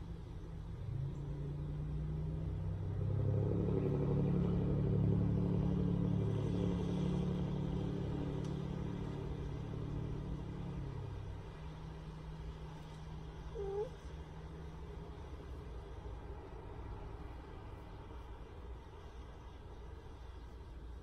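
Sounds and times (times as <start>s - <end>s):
motor vehicle passing by: 0.0s - 20.7s.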